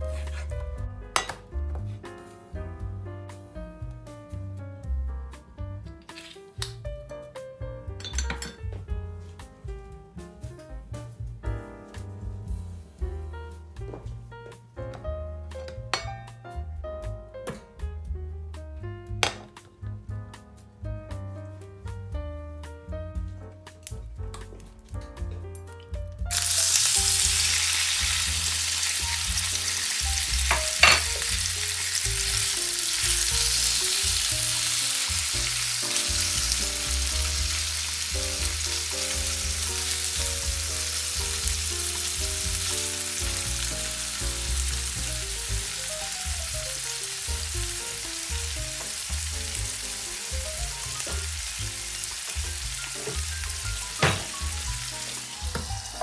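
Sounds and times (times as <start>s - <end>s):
chicken sizzling in hot oil: 26.3s - 56.0s
sharp knocks against pan: 30.5s - 31.2s, 54.0s - 54.4s.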